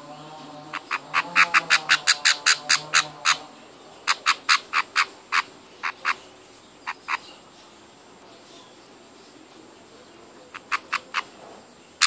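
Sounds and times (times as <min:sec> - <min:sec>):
budgerigar chick begging calls: 0:00.6 - 0:07.4, 0:10.5 - 0:11.4.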